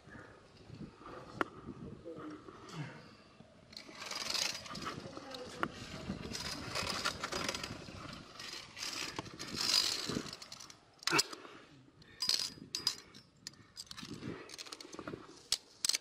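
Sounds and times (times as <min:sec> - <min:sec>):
metal scraping along cable: 0:03.7 - 0:11.3.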